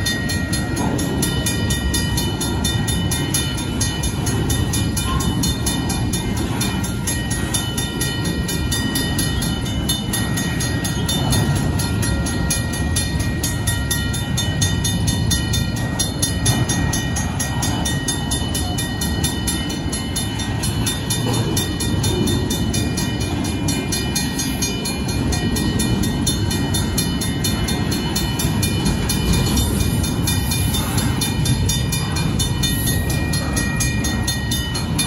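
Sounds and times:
crossing warning bell ringing: 0.0s - 35.0s
train wheels rumbling on rail: 0.0s - 35.0s.

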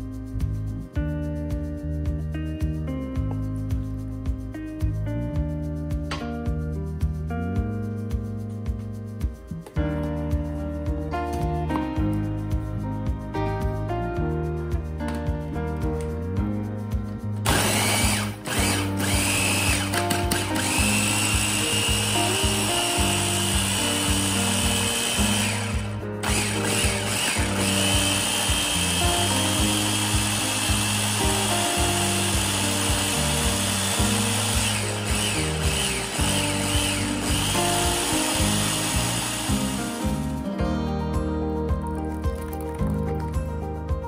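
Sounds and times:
food chopper motor whirring: 17.5s - 40.3s.

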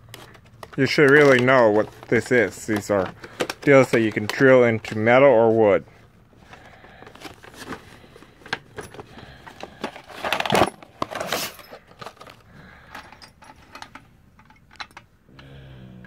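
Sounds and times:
plastic packaging clicks and crackles: 0.0s - 5.2s, 6.4s - 14.9s
metallic jangle of drill bits: 8.7s - 15.0s.

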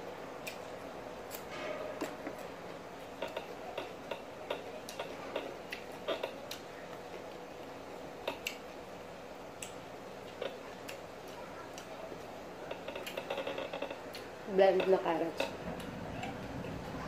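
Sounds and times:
chewing and lip-smacking: 1.3s - 7.3s, 9.6s - 12.0s.

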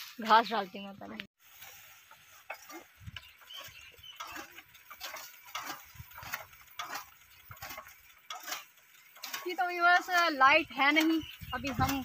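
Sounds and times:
chaff cutter chopping fodder: 2.5s - 12.0s.

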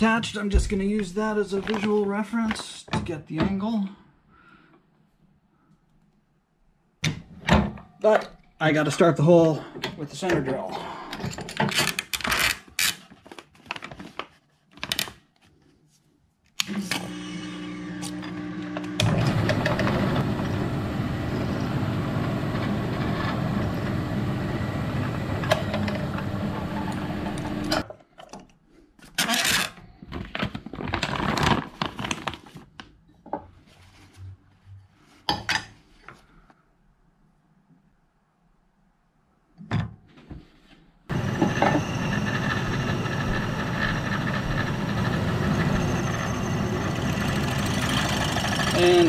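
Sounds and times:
drill press motor hum: 16.6s - 27.8s, 41.1s - 49.0s.

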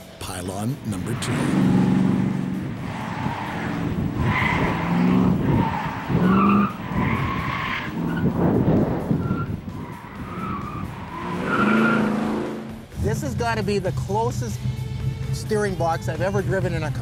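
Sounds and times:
car engine revving: 0.4s - 13.7s
tyre squeals: 1.1s - 12.4s.

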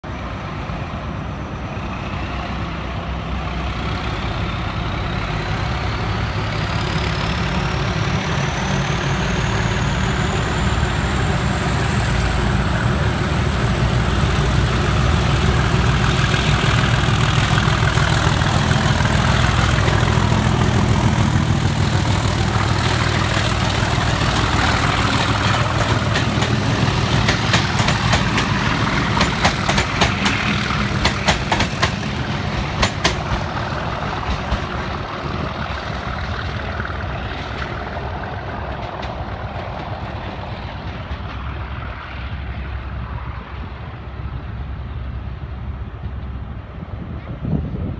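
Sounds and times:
diesel locomotive engine: 0.0s - 47.9s
wheels clacking over rail joints: 11.0s - 42.1s.

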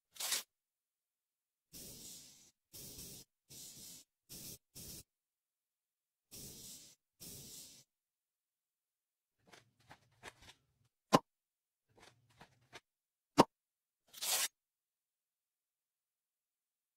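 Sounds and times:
face spray hiss: 1.7s - 5.1s, 6.3s - 7.9s.

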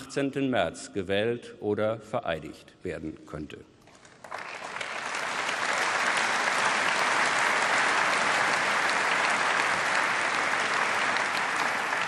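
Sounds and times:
large crowd applauding: 4.0s - 12.0s.

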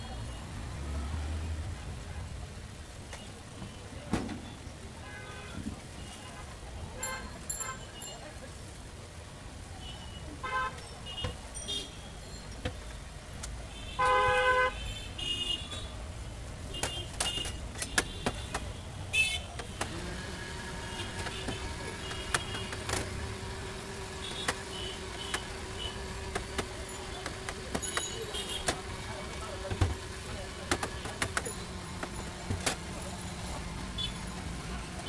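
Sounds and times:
street traffic: 0.0s - 35.0s
vehicle horn honking: 13.8s - 15.9s, 28.0s - 28.8s
sharp clicks and taps: 30.7s - 32.8s.

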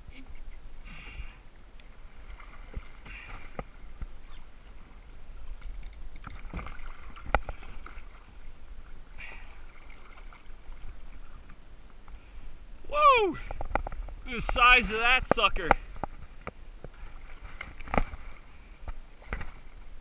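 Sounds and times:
water splashing and lapping: 0.0s - 12.6s, 13.4s - 20.0s.

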